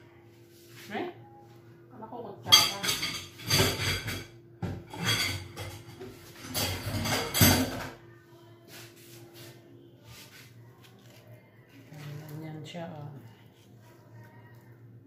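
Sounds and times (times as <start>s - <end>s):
dishes and utensils clattering: 2.4s - 8.0s.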